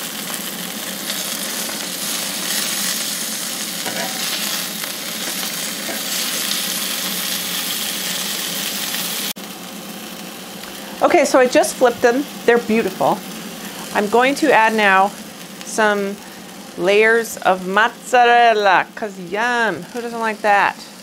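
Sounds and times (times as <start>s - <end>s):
chicken sizzling in oil: 0.0s - 21.0s
tongs turning meat: 0.1s - 9.3s.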